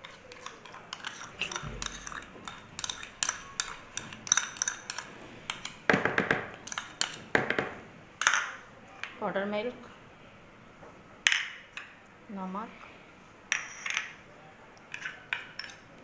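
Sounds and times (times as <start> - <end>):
spoon clinking against a bowl: 0.0 - 5.8, 14.9 - 15.8.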